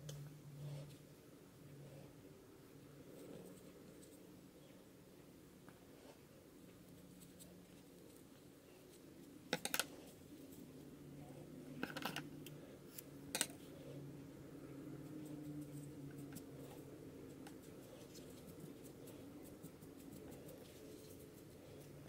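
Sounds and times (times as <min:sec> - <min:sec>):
faint low hum: 0:00.0 - 0:22.0
soft rustling of paper: 0:03.0 - 0:04.8, 0:15.0 - 0:22.0.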